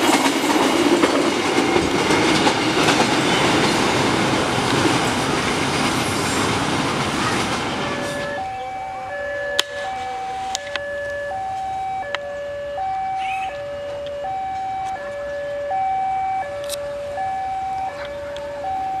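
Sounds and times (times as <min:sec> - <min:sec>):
level crossing two-tone alarm: 0:07.9 - 0:19.0.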